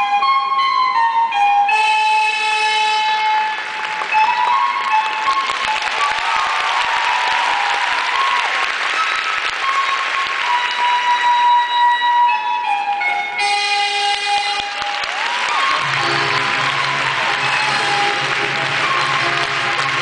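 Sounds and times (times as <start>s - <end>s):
music over public address: 0.0s - 20.0s
audience applauding: 3.5s - 11.6s, 14.0s - 20.0s.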